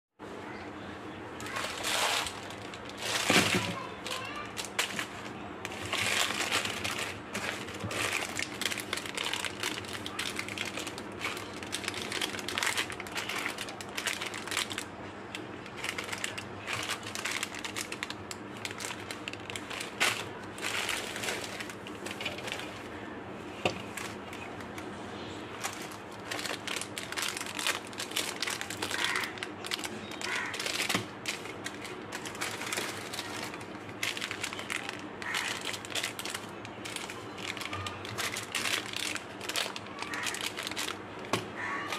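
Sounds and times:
plastic wrappers crackling: 0:01.4 - 0:41.9.

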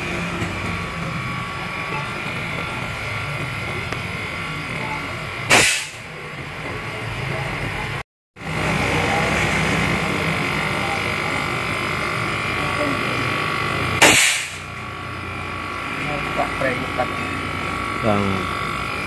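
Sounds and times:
low machine hum: 0:00.0 - 0:19.0
sharp loud burst: 0:05.5 - 0:06.0, 0:14.0 - 0:14.7
hose jet hissing: 0:14.0 - 0:14.7.

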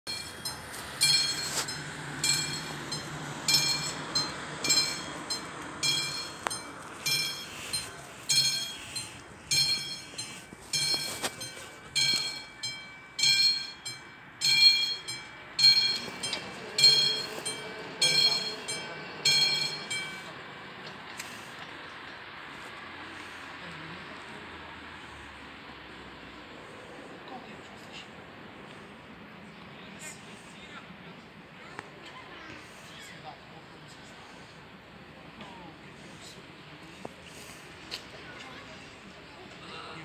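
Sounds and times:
level crossing bell ringing: 0:00.1 - 0:20.7.

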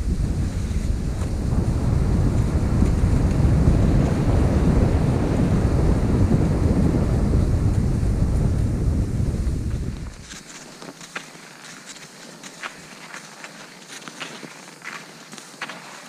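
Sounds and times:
wind rushing over microphone: 0:00.0 - 0:10.5.

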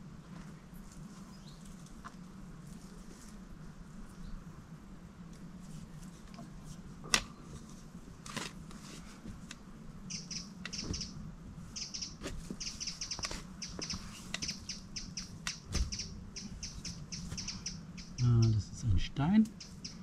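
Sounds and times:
steady low hum: 0:00.0 - 0:20.0
small bird chirping: 0:10.1 - 0:20.0.

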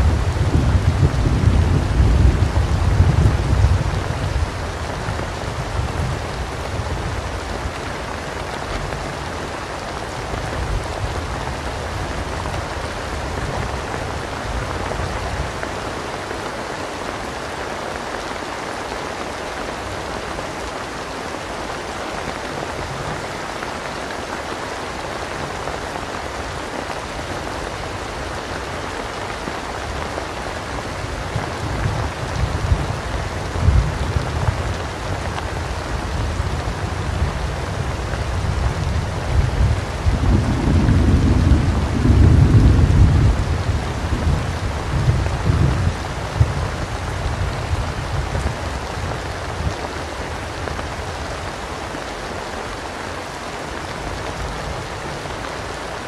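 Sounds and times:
low thunder rumble: 0:00.0 - 0:07.3, 0:31.2 - 0:49.7
heavy rain falling: 0:00.0 - 0:56.0.

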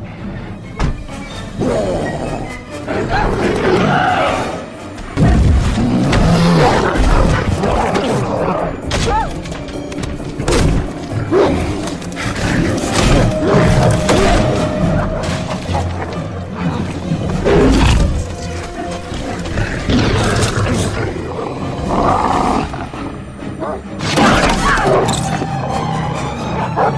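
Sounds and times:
orchestral score: 0:00.0 - 0:26.9
creature growls and snarls: 0:05.2 - 0:08.8, 0:19.0 - 0:23.1.

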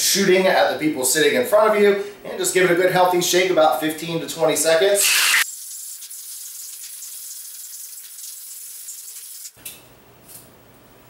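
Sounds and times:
ice shaken in cocktail shaker: 0:05.4 - 0:09.6.

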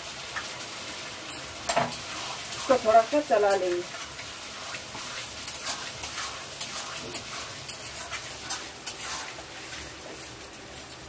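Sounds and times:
food sizzling: 0:00.0 - 0:11.0
metal ladle scraping a pan: 0:01.7 - 0:03.0, 0:03.9 - 0:10.2.

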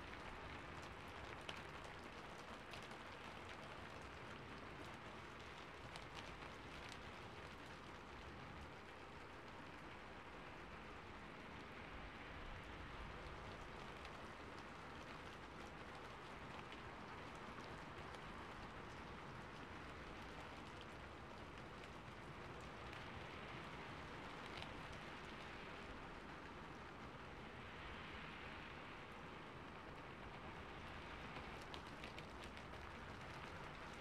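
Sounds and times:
steady rain hissing: 0:00.0 - 0:34.0.

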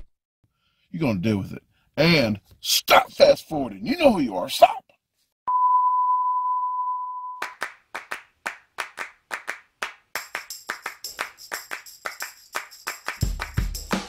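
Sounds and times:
sharp handclaps: 0:07.4 - 0:14.0.

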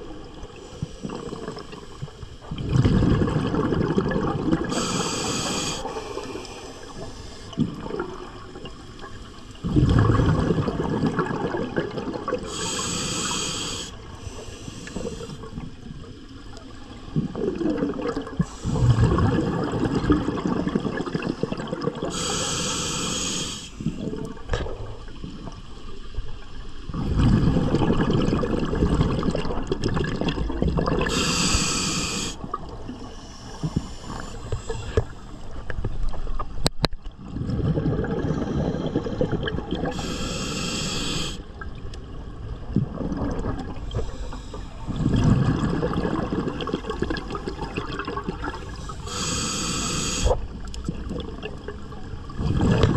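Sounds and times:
exhaled bubbles rumbling underwater: 0:00.0 - 0:52.9
regulator inhalation hiss: 0:04.7 - 0:07.6, 0:12.5 - 0:15.4, 0:22.1 - 0:24.0, 0:31.1 - 0:32.4, 0:33.0 - 0:35.3, 0:39.9 - 0:41.5, 0:48.7 - 0:50.4.

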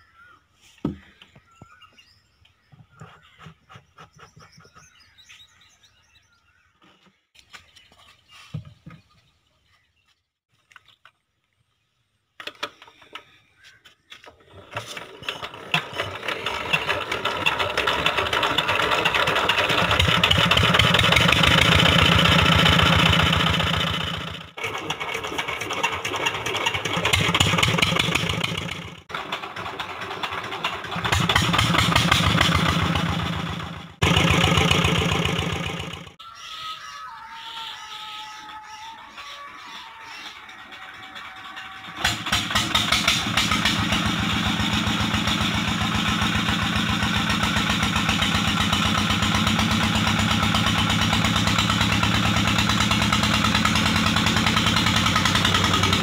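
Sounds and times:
diesel engine running: 0:14.6 - 0:36.2, 0:40.0 - 0:56.0.

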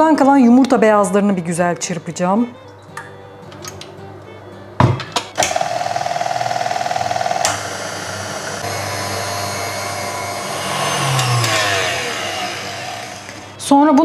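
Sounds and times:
stand mixer motor whisking: 0:05.4 - 0:13.6
mixer switch click: 0:07.4 - 0:07.7.

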